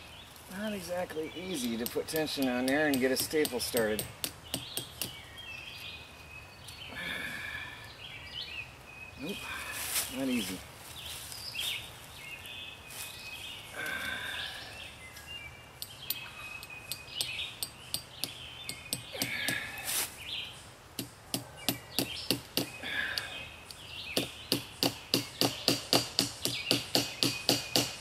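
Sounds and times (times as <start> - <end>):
birds chirping: 0.0 - 28.0
hammer striking staples: 1.8 - 5.2, 21.0 - 22.8, 24.2 - 28.0.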